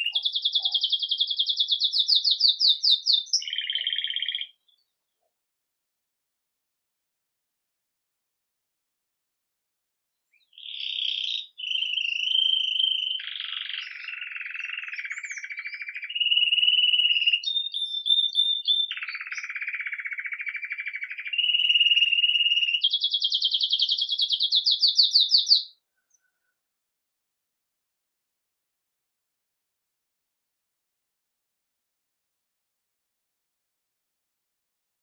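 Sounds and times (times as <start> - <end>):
canary singing trills: 0.0 - 4.9, 10.3 - 26.5.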